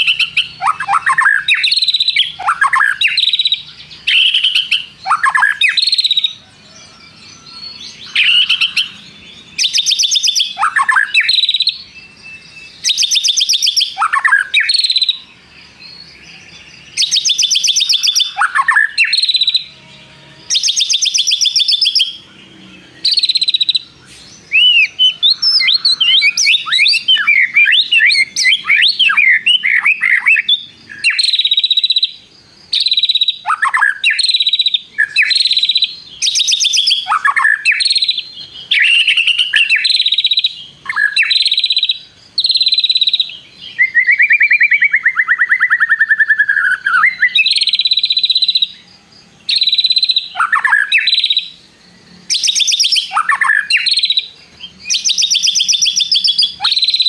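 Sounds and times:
bird singing trills and chirps: 0:00.0 - 0:57.0.

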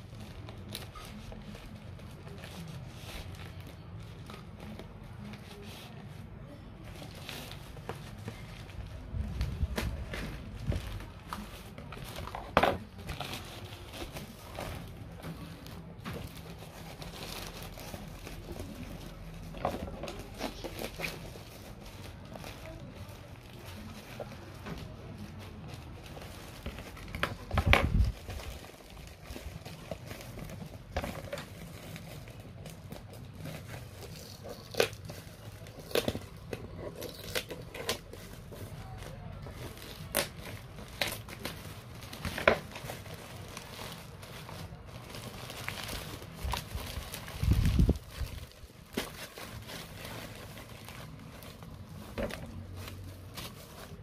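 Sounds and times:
plastic bag crinkling: 0:00.0 - 0:54.0.

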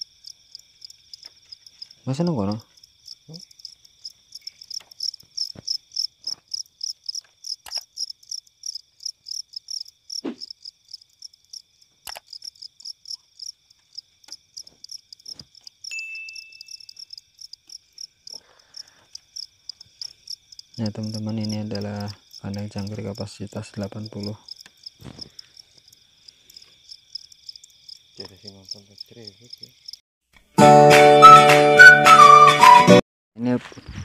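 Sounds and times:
crickets chirping: 0:00.0 - 0:30.0
high insect trill: 0:00.0 - 0:30.0.

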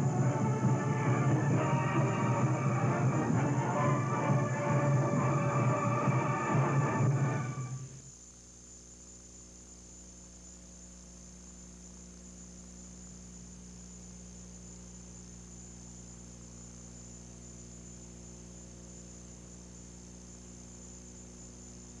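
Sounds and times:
high-pitched whine: 0:00.0 - 0:08.0.

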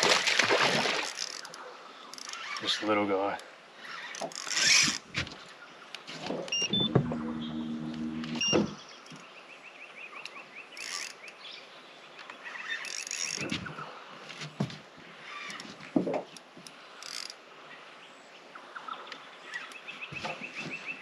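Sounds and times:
low steady hum: 0:06.5 - 0:08.5.

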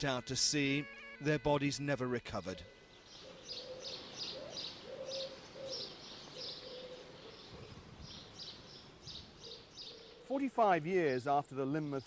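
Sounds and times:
lower wavering bird call: 0:02.6 - 0:08.6, 0:09.2 - 0:10.3.

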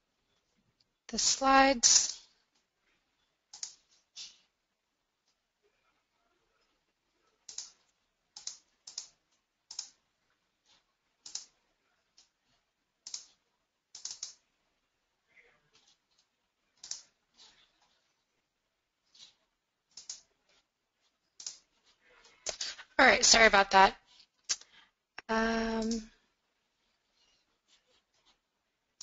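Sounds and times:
computer keyboard and mouse clicks: 0:03.5 - 0:04.0, 0:07.4 - 0:10.0, 0:11.2 - 0:11.6, 0:13.0 - 0:14.4, 0:15.7 - 0:18.0, 0:19.1 - 0:20.6, 0:21.4 - 0:22.6.

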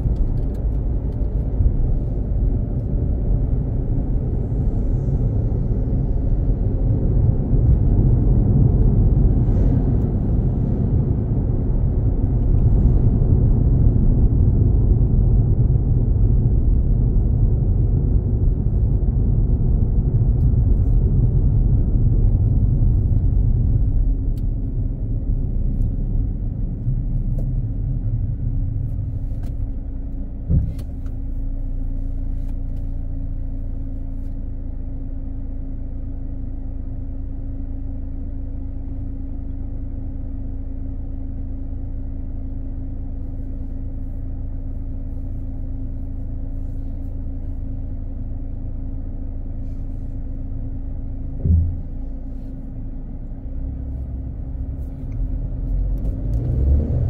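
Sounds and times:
car driving rumble: 0:00.0 - 0:57.0
car engine idle hum: 0:00.0 - 0:57.0
short thump: 0:30.4 - 0:31.1, 0:51.4 - 0:52.2.

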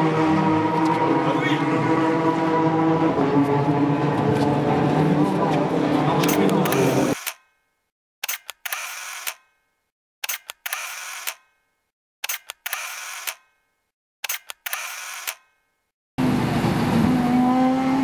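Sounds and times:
camera shutter clicking: 0:06.2 - 0:07.5, 0:08.2 - 0:09.6, 0:10.2 - 0:11.6, 0:12.2 - 0:13.6, 0:14.2 - 0:15.6.

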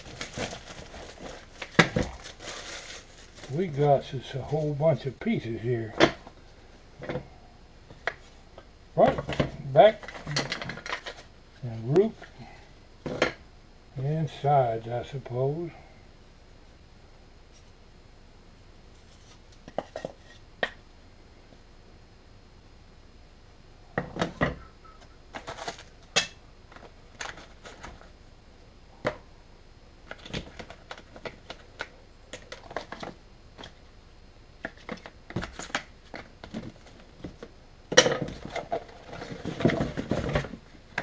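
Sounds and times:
cardboard box rustling: 0:00.0 - 0:03.6, 0:38.2 - 0:40.7.

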